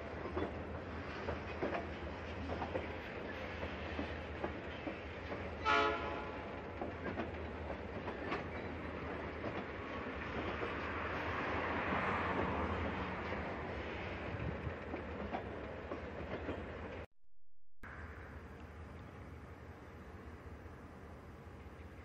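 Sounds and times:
train wheels clicking over rail joints: 0:00.0 - 0:11.1, 0:11.9 - 0:17.1
train horn toot: 0:05.6 - 0:06.5.

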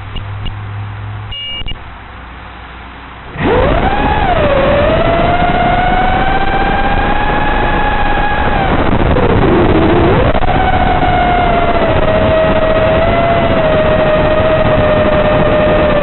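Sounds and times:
two-tone beep: 0:01.3 - 0:01.8
drone motors whining: 0:03.3 - 0:16.0.

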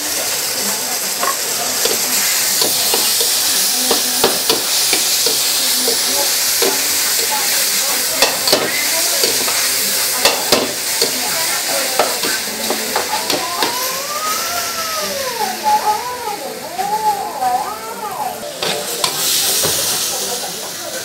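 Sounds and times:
food sizzling in a wok: 0:00.0 - 0:21.0
ladle scraping wok: 0:01.0 - 0:14.7.

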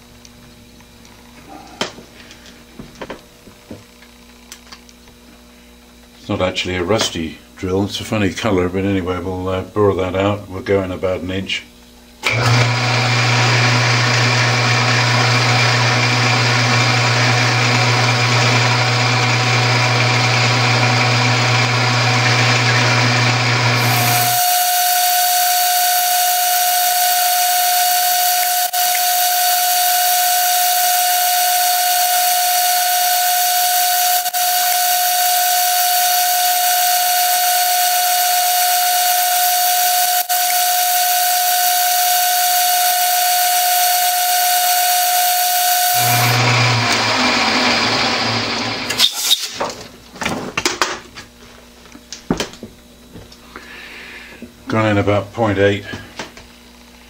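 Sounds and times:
lathe humming: 0:12.2 - 0:49.0
drill high whine: 0:12.2 - 0:49.3.

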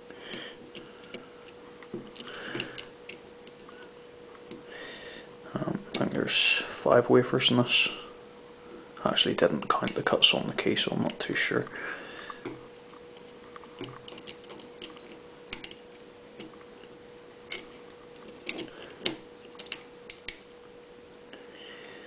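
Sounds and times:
faint steady hum: 0:00.0 - 0:22.0.

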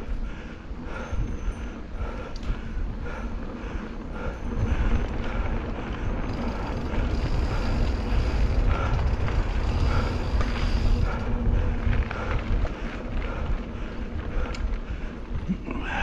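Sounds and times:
bike clicks and rattles: 0:00.0 - 0:16.0
wind rumble on camera: 0:00.0 - 0:16.0
tyres rolling over dirt: 0:03.2 - 0:16.0.

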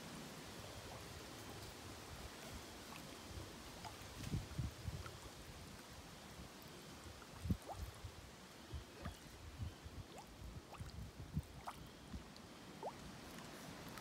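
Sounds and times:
mud bubbling and plopping: 0:07.0 - 0:14.0.

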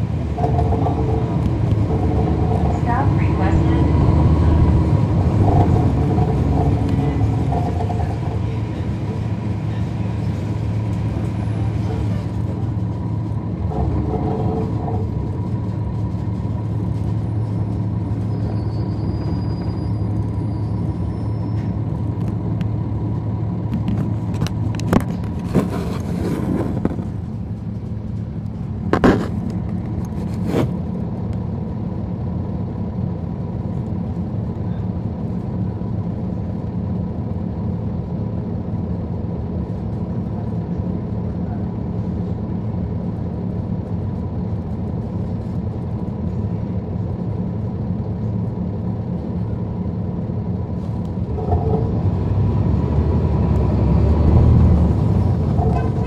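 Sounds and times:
bus diesel engine droning: 0:00.0 - 0:56.0.

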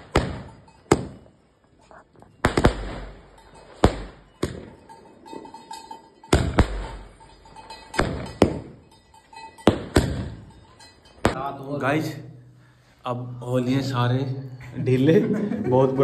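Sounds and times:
firecracker bangs: 0:00.0 - 0:01.3, 0:02.4 - 0:04.8, 0:06.3 - 0:07.2, 0:07.9 - 0:08.8, 0:09.6 - 0:10.5.

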